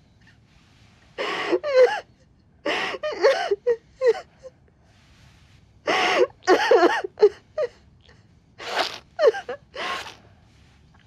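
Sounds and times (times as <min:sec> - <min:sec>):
woman sobbing: 0:01.2 - 0:04.6, 0:06.0 - 0:07.8, 0:09.2 - 0:09.8.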